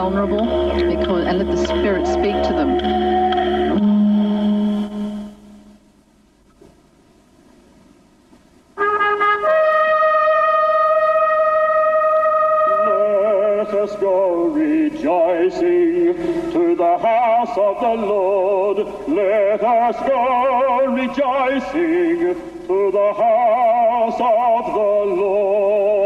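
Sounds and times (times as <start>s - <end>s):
choir singing: 0.6s - 3.9s.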